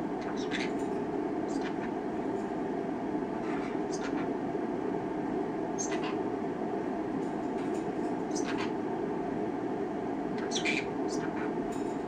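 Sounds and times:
low background hum: 0:00.0 - 0:12.0
parrot chirping: 0:00.2 - 0:00.8, 0:01.4 - 0:02.1, 0:03.3 - 0:04.4, 0:05.8 - 0:06.3, 0:08.3 - 0:08.8, 0:10.4 - 0:11.6.

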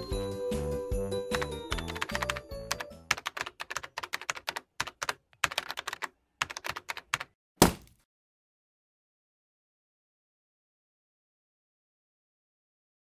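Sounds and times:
loud thunk: 0:07.6 - 0:08.0.

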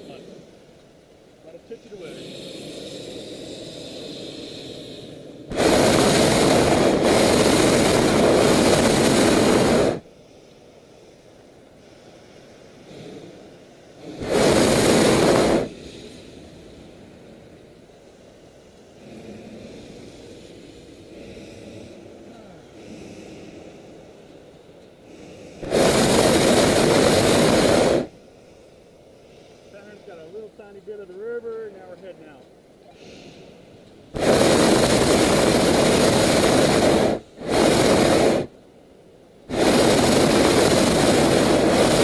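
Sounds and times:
propane burner firing: 0:05.4 - 0:10.0, 0:14.0 - 0:15.8, 0:25.6 - 0:28.1, 0:34.1 - 0:38.6, 0:39.4 - 0:42.0
quiet low murmur: 0:15.6 - 0:25.6.

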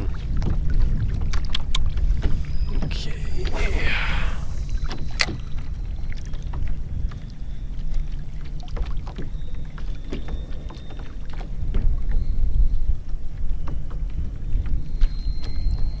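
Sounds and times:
water lapping against hull: 0:00.0 - 0:16.0
steady low rumble: 0:02.9 - 0:05.2.

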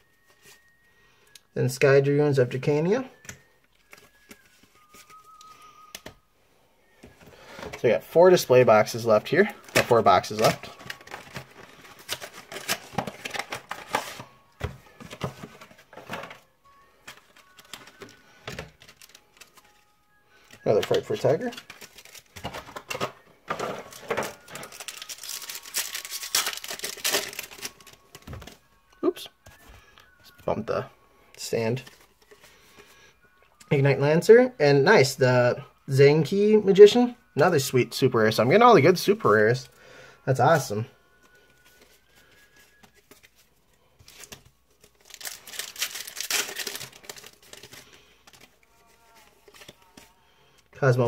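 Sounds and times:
trading cards handled: 0:03.2 - 0:06.2, 0:09.5 - 0:28.6, 0:41.2 - 0:50.2
foil wrapper crinkling: 0:17.1 - 0:22.9, 0:23.8 - 0:28.6, 0:44.0 - 0:50.1
foil wrapper tearing: 0:24.0 - 0:28.0, 0:44.2 - 0:48.5.

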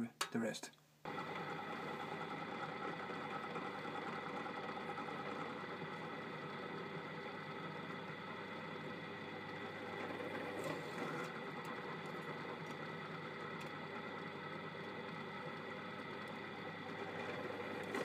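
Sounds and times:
drill press motor humming: 0:01.0 - 0:18.0.

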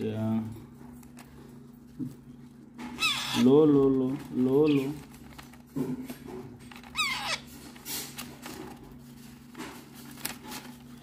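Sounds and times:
parrot chick squeaks and chirps: 0:02.9 - 0:03.5, 0:06.9 - 0:07.5.

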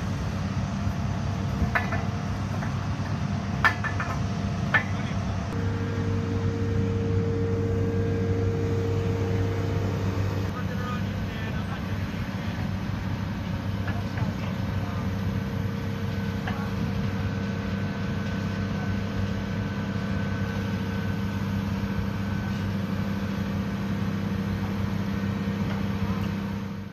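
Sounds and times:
excavator diesel engine humming: 0:00.0 - 0:26.9
faint high whine: 0:05.0 - 0:26.3.

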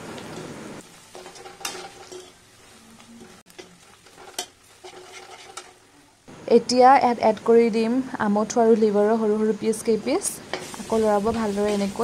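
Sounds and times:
food sizzling in oil: 0:00.0 - 0:12.0
metal spatula scraping pan: 0:01.1 - 0:05.8.

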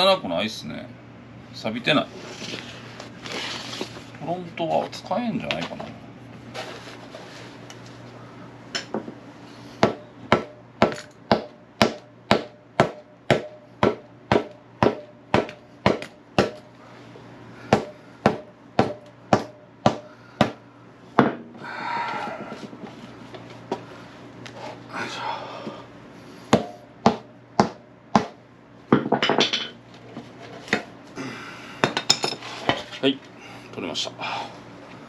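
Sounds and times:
hammer striking metal: 0:09.8 - 0:16.7, 0:26.5 - 0:28.4.

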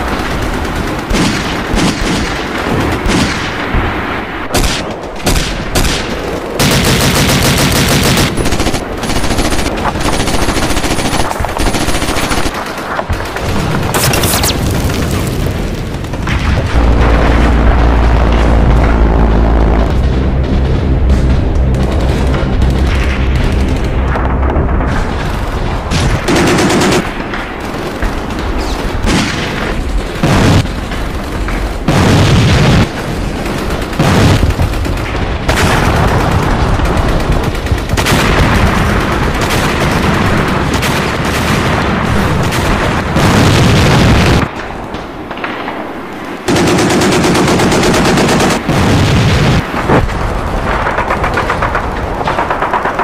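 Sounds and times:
machine-gun and rifle fire: 0:00.0 - 0:53.0
heavy booms: 0:13.8 - 0:26.8.

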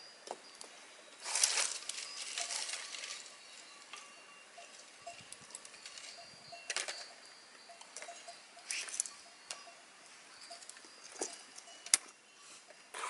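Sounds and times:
twigs snapping and rustling: 0:01.2 - 0:03.3.

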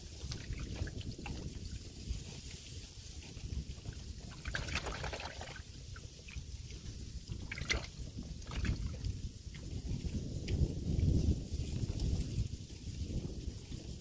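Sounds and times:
water lapping against boat hull: 0:00.0 - 0:10.6
water splashes: 0:00.2 - 0:01.8, 0:04.2 - 0:09.6.

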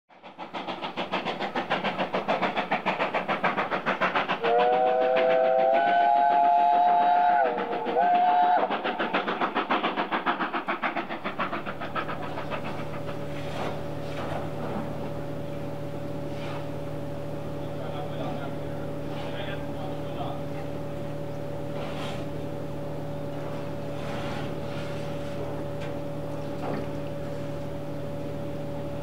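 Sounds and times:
steam locomotive exhaust beats: 0:00.1 - 0:29.0
steam locomotive chime whistle: 0:04.4 - 0:08.7
steady low hum: 0:10.5 - 0:29.0.

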